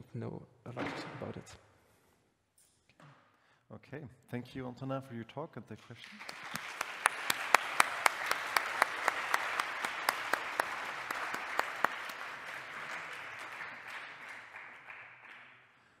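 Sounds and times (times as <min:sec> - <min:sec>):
loud single claps: 0:06.0 - 0:15.6
audience applauding: 0:06.0 - 0:15.7.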